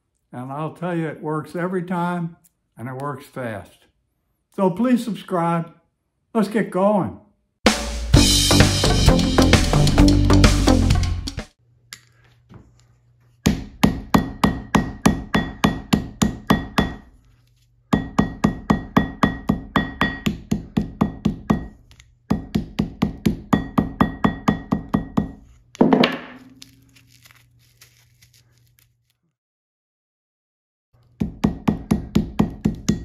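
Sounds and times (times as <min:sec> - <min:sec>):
hammer pounding on anvil: 0:13.5 - 0:17.0, 0:17.9 - 0:21.7, 0:22.3 - 0:26.4.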